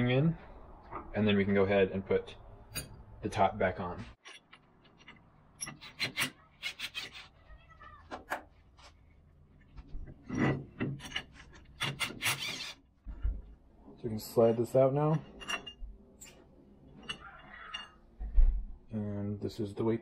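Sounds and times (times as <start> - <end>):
cordless drill whirring: 12.0 - 12.8.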